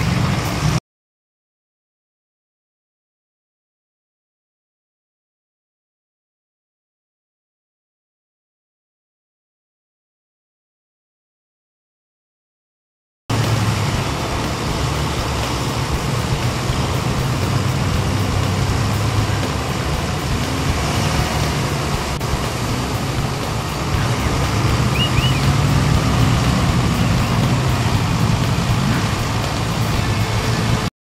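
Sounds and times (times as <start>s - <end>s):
tires splashing water: 0.0s - 0.8s, 13.3s - 30.9s
truck engine running under load: 0.0s - 0.8s, 13.3s - 30.9s.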